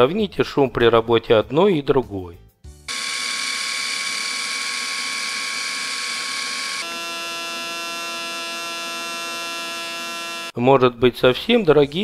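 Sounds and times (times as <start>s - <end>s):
electric shaver whirring: 2.9s - 10.6s
foil shaver buzzing: 2.9s - 10.6s.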